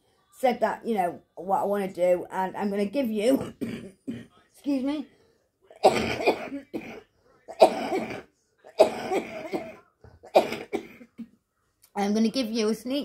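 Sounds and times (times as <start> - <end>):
woman coughing: 3.3 - 4.3, 5.8 - 11.4.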